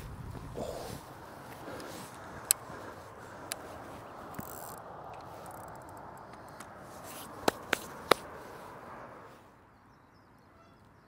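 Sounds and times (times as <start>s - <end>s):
fishing reel clicks on metal rests: 4.3s - 6.7s.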